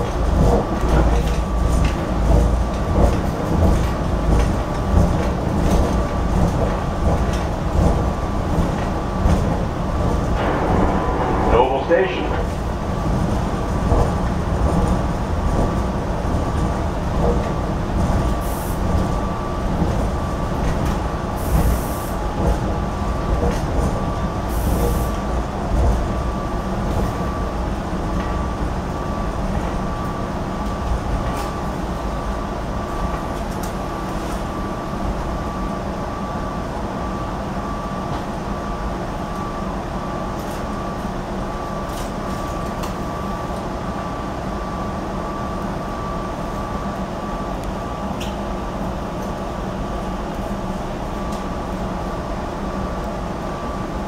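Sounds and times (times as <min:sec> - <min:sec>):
train running rumble: 0:00.0 - 0:54.0.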